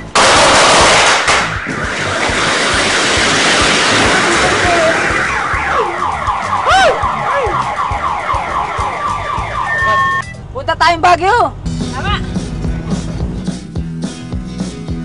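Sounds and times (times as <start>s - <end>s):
loud noisy rush: 0.2s - 9.1s
car alarm falling tone: 1.3s - 10.4s.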